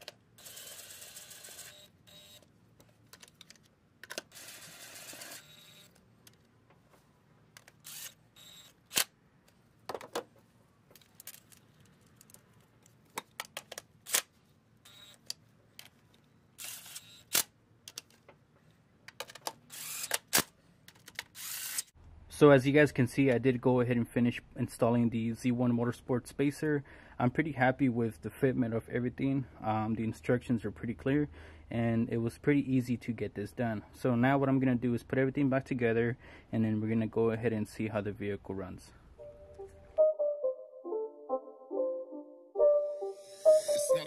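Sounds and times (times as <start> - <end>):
cordless driver spinning: 0.4 - 2.4, 4.3 - 6.0, 7.6 - 9.1, 19.7 - 20.4, 21.3 - 21.9.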